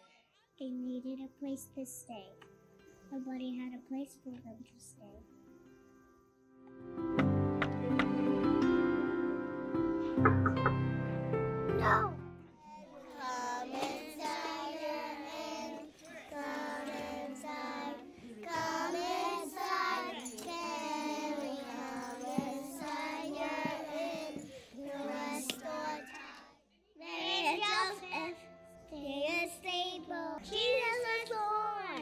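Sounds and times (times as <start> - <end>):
girl speaking: 0.6 - 2.3
children's choir singing: 13.0 - 26.4.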